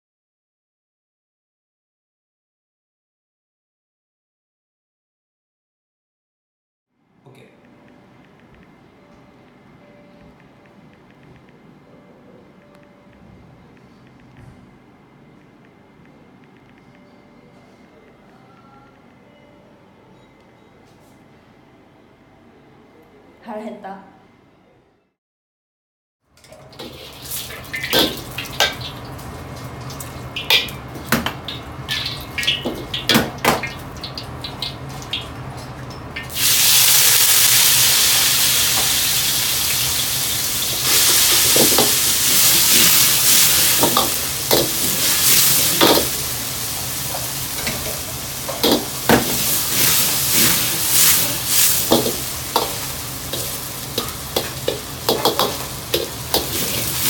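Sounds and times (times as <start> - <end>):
low steady hum: 7.0 - 25.0
noodles sizzling in hot oil: 36.2 - 57.0
ladle clanking against wok: 40.9 - 57.0
metal utensils clattering: 47.1 - 57.0.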